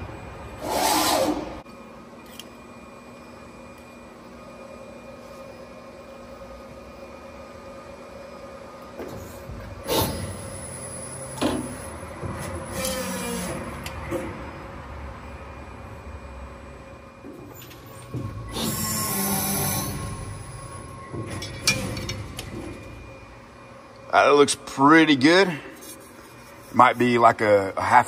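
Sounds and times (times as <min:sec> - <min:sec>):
machine hum with faint whining: 0:00.0 - 0:28.0
machine clunks: 0:20.0 - 0:23.1.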